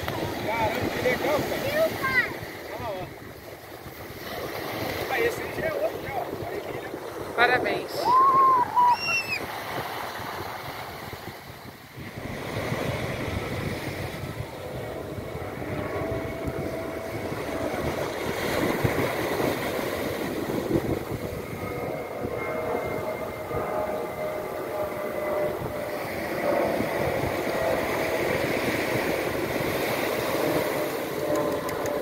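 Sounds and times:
small waves breaking on a beach: 0:00.0 - 0:21.2, 0:25.2 - 0:31.8
wind buffeting microphone: 0:00.0 - 0:32.0
high-pitched cry: 0:08.0 - 0:09.4.

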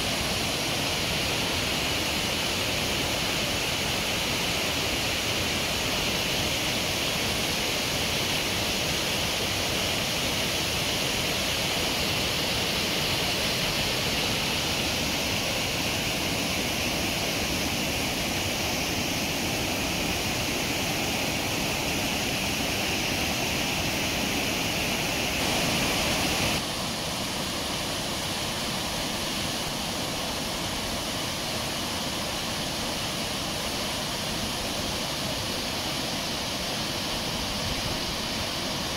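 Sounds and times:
river rapids rushing: 0:00.0 - 0:38.9.

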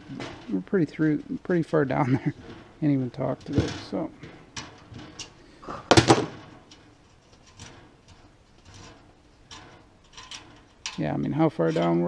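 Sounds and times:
loud metal clack: 0:05.9 - 0:06.7.

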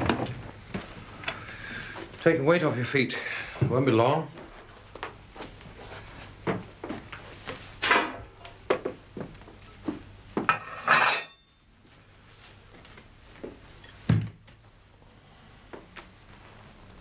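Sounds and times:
footsteps and knocks in a room: 0:00.0 - 0:02.4, 0:03.5 - 0:10.7, 0:11.5 - 0:17.0
wooden chair moved and set down: 0:14.0 - 0:14.4.

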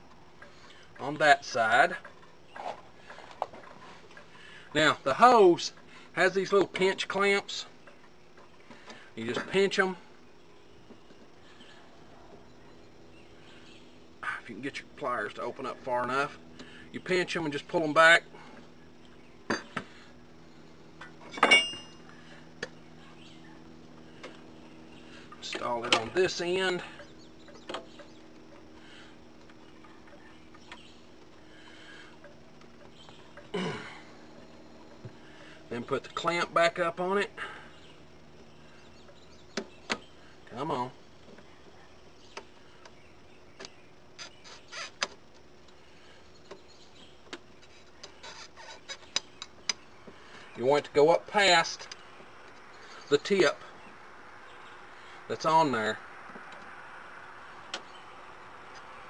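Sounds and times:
faint steady hum: 0:00.0 - 0:59.0
ringing metal clink: 0:21.2 - 0:22.0.

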